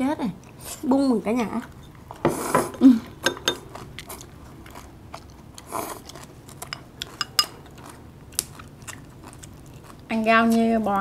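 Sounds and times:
soft chewing: 2.9s - 11.0s
utensils tapping dishes: 6.7s - 7.6s.

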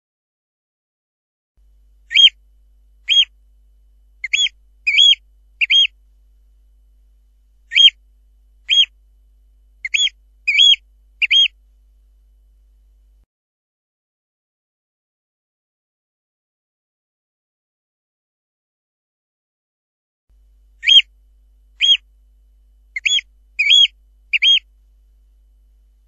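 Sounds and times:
oystercatcher piping calls: 2.1s - 2.4s, 3.0s - 3.3s, 4.2s - 6.0s, 7.7s - 8.0s, 8.6s - 9.0s, 9.8s - 11.6s, 20.8s - 21.1s, 21.8s - 22.0s, 22.9s - 24.7s.

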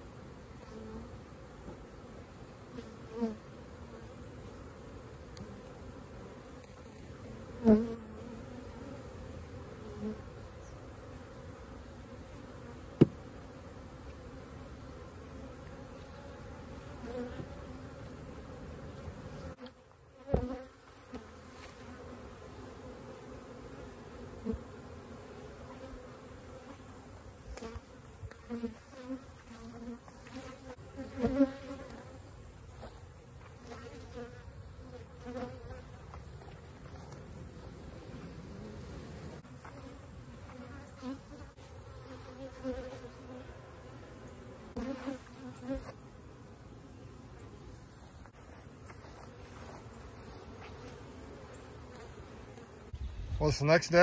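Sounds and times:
honeybees buzzing: 0.0s - 54.0s
sharp knocks and thumps: 13.0s - 13.2s.

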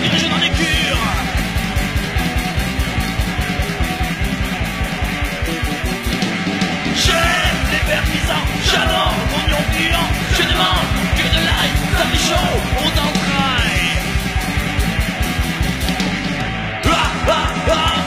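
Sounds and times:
punk rock song: 0.0s - 18.0s
person singing: 7.0s - 14.1s, 16.8s - 18.0s.

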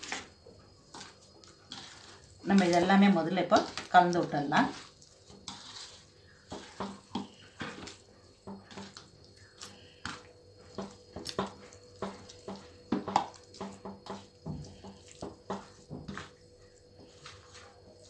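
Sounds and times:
hands squelching wet meat: 8.6s - 18.0s.

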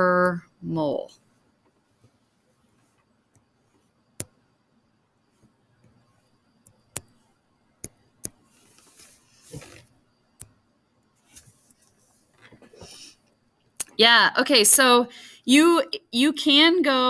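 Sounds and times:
soft rustle: 1.1s - 4.0s, 8.4s - 10.0s, 11.1s - 13.2s.

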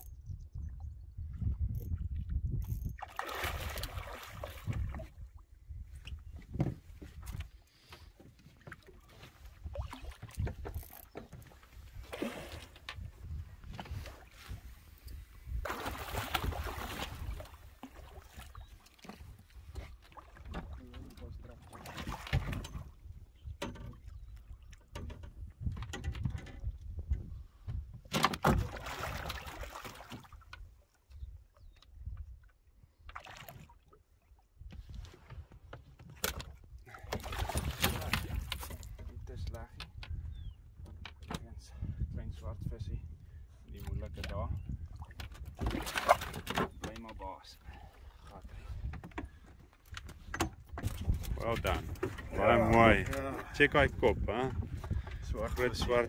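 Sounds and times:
water splashing against a boat: 1.3s - 56.0s
fish thrashing and splashing: 15.6s - 19.2s.

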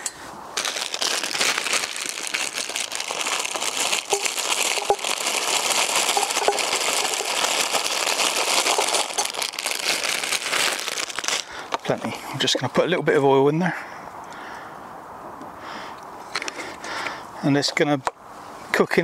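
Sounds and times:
plastic bag crinkling: 0.6s - 12.0s.

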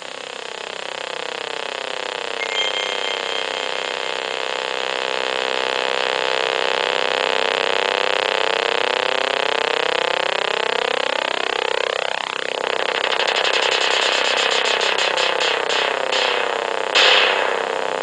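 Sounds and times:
buzzing electronic drone: 0.0s - 18.0s
high whistle tone: 2.4s - 4.9s.

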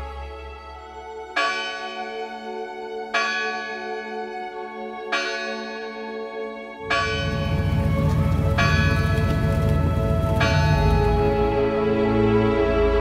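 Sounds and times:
church bell tolling: 5.1s - 11.6s
deep low rumble: 6.8s - 11.8s.

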